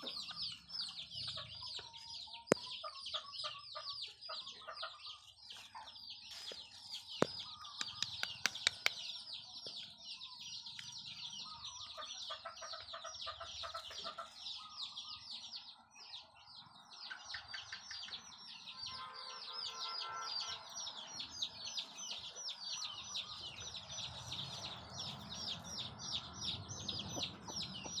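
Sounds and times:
birds chirping rapidly: 0.0 - 28.0
sharp clicks: 7.2 - 9.1.

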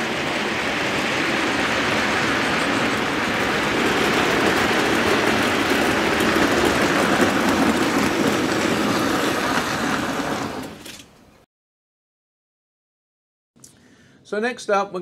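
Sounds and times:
model train rumbling on track: 0.0 - 11.0.

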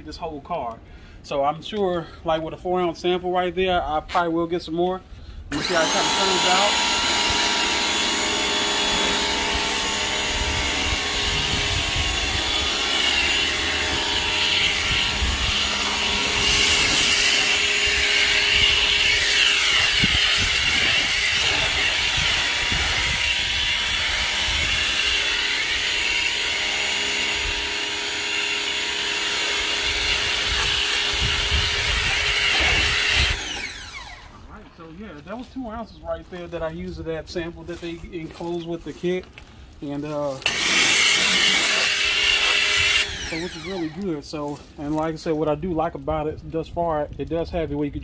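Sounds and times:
pressure washer motor humming: 5.5 - 34.5, 40.4 - 44.0.

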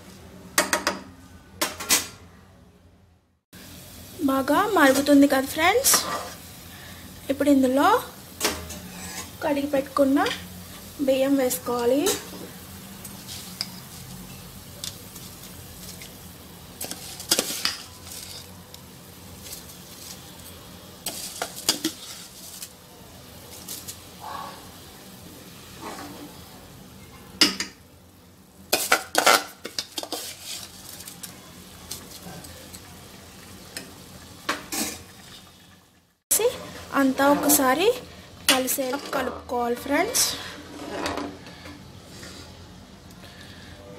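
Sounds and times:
metal spoon scraping a pot: 5.9 - 6.4, 8.7 - 9.4, 28.8 - 30.8
liquid boiling and bubbling: 29.0 - 38.5.

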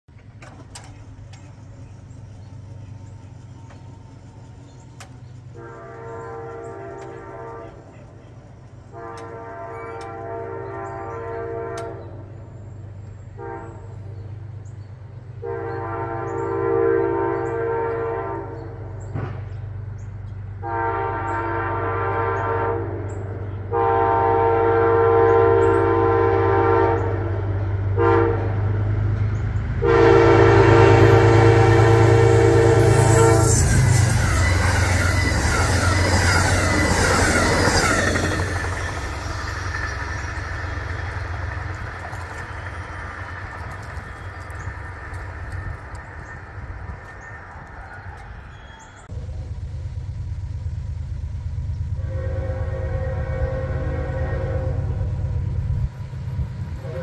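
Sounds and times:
train rumble: 0.0 - 57.0
locomotive air horn blasts: 5.5 - 8.0, 8.9 - 12.3, 13.3 - 14.1, 15.4 - 19.0, 20.6 - 28.8, 29.8 - 41.7, 51.9 - 55.6, 56.7 - 57.0.

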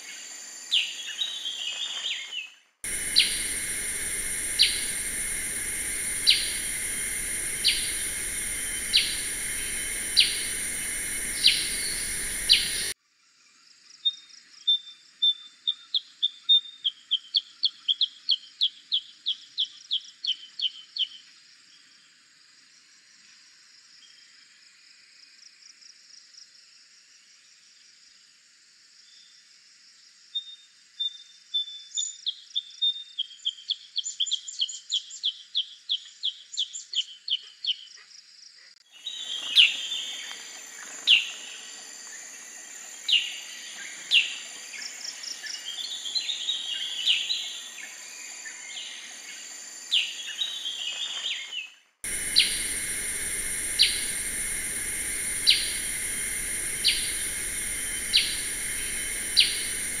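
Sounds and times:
steady hiss: 2.9 - 13.0, 52.1 - 60.0.

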